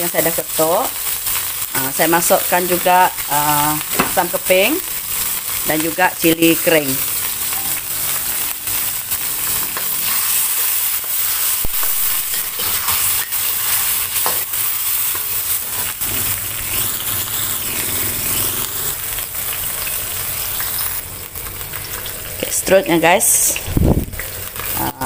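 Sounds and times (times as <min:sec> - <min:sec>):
paste sizzling in a wok: 0:00.0 - 0:25.0
metal spatula scraping a pan: 0:07.2 - 0:20.5.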